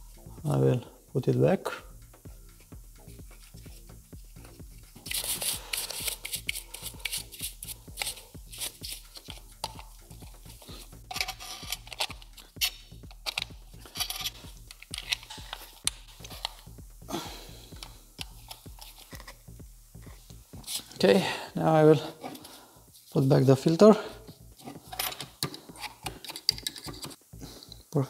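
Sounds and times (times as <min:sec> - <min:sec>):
plastic parts clicking and rattling: 0:05.0 - 0:09.9, 0:10.5 - 0:16.6, 0:24.6 - 0:27.2
screwdriver driving screws: 0:11.1 - 0:16.6.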